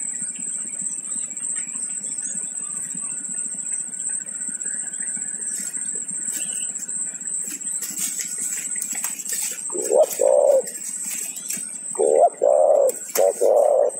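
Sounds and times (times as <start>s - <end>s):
low background noise: 0.0s - 13.9s
thin high-pitched whine: 0.0s - 13.9s
twigs and leaves rustling: 5.4s - 13.9s.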